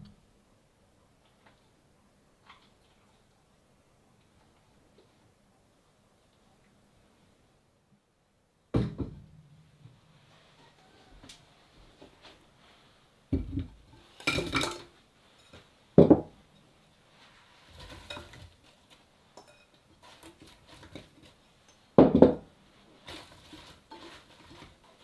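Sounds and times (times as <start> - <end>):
dishes and utensils clinking: 17.7 - 21.9.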